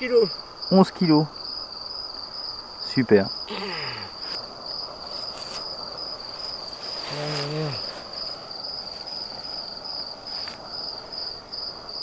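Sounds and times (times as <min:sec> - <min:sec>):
cricket chirping: 0:00.0 - 0:12.0
man humming: 0:03.5 - 0:04.1, 0:07.1 - 0:07.9.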